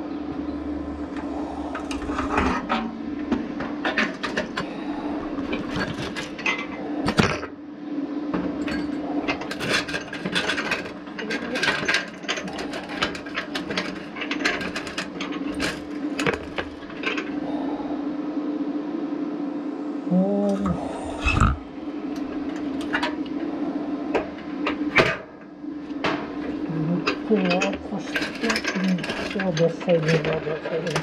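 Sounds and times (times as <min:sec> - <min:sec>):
welder humming: 0:19.5 - 0:24.9.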